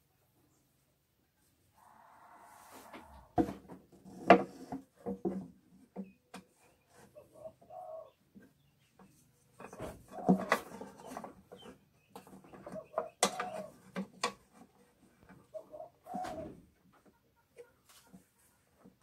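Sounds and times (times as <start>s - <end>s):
wooden knocks and clatter: 3.4s - 6.5s, 8.4s - 15.5s.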